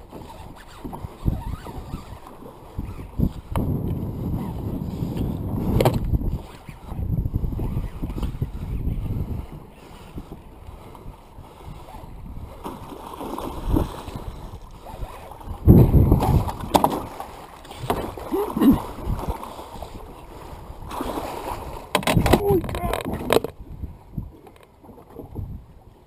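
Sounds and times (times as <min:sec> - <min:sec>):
water splashing and churning: 0:00.0 - 0:26.0
wind on microphone: 0:00.0 - 0:26.0
net knocking against boat: 0:21.9 - 0:23.5.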